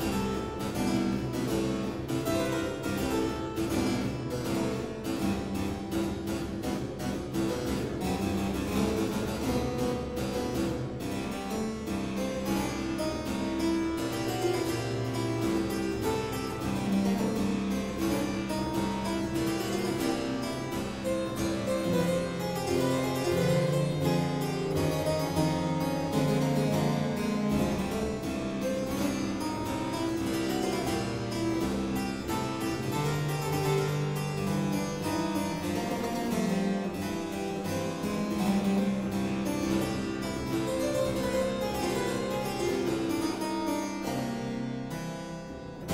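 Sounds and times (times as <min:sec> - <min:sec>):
boogie-woogie harpsichord: 0:00.0 - 0:45.9.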